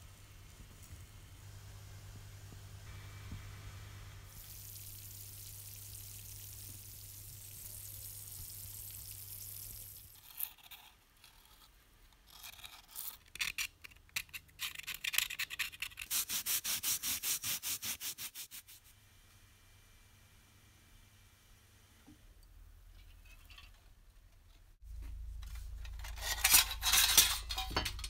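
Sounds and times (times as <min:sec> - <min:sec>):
low hum: 0:00.0 - 0:08.5
bath fizzing with bubbles: 0:04.3 - 0:10.1
blade scraping rust off metal: 0:25.8 - 0:28.0.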